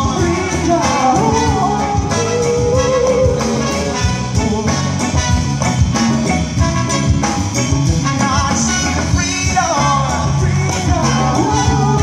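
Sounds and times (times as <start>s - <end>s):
person singing: 0.0s - 5.0s, 8.3s - 12.0s
congas: 0.0s - 12.0s
live band playing: 0.0s - 12.0s.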